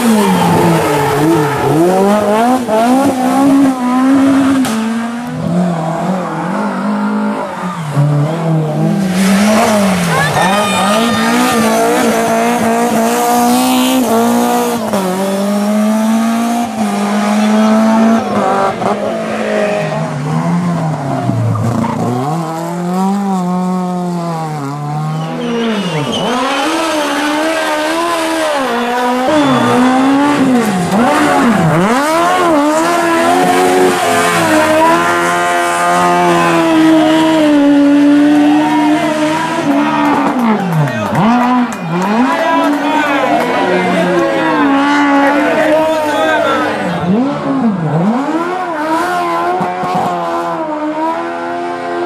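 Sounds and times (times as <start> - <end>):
rally car engine revving: 0.0 - 52.0
tyres squealing: 25.2 - 30.5.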